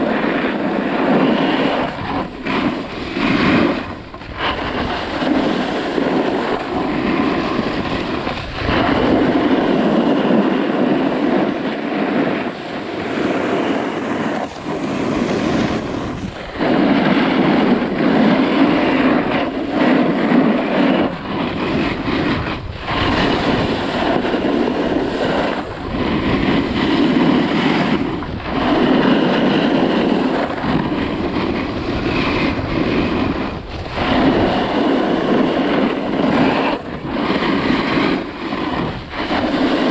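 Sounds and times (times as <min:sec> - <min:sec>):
edges scraping over snow: 0:00.0 - 0:39.9
wind buffeting microphone: 0:00.0 - 0:39.9.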